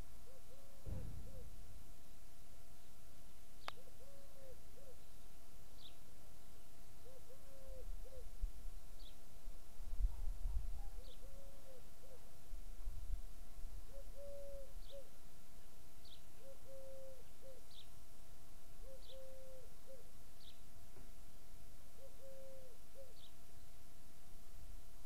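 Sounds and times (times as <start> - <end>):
dove cooing: 0.3 - 1.6, 3.8 - 5.0, 7.0 - 8.3, 10.8 - 12.3, 13.9 - 15.1, 16.4 - 17.8, 18.8 - 20.1, 22.0 - 23.3.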